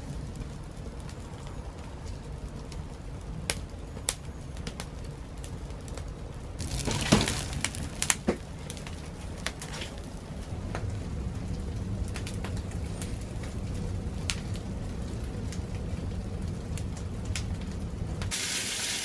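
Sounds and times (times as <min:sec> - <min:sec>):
low fire rumble: 0:00.0 - 0:19.0
sharp fire pops: 0:00.0 - 0:19.0
wood fire crackling: 0:00.0 - 0:19.0
rush of leaves flaring up: 0:06.6 - 0:16.8.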